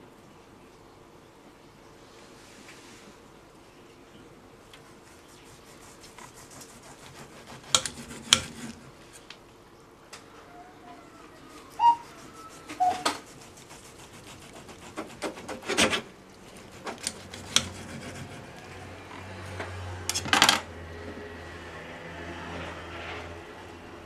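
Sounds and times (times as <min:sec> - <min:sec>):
knife scraping on ceramic plate: 0:05.0 - 0:08.9, 0:16.7 - 0:18.6.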